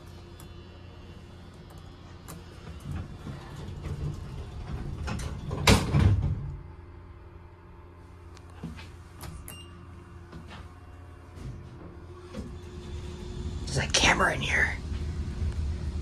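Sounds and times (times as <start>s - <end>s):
elevator low hum: 0.0s - 16.0s
elevator doors sliding: 0.9s - 6.6s, 10.2s - 16.0s
elevator door clunk: 2.8s - 6.6s.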